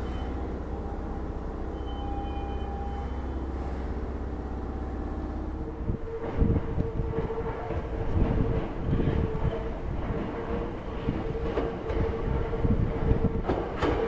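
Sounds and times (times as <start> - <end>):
steady train whine: 0.0 - 14.0
train humming: 0.0 - 14.0
train wheels knocking over rail joints: 6.1 - 14.0.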